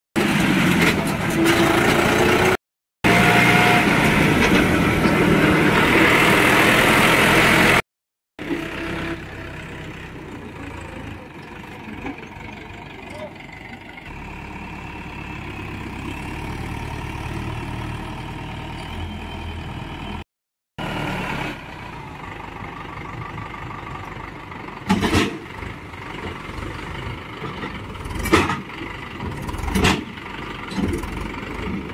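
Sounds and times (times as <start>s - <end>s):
tractor diesel engine running: 8.4s - 20.2s, 20.8s - 31.9s.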